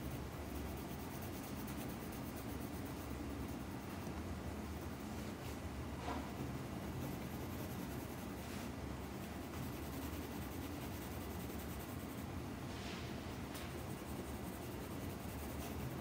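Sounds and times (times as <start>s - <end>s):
pencil shading on paper: 0.0s - 3.8s, 6.9s - 8.5s, 9.2s - 12.3s, 13.8s - 16.0s
low background hum: 0.0s - 16.0s.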